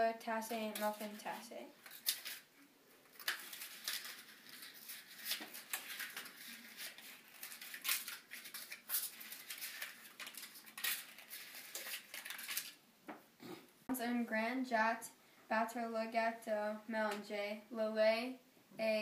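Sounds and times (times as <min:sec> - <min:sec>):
paper crinkling and rustling: 0:00.6 - 0:12.8.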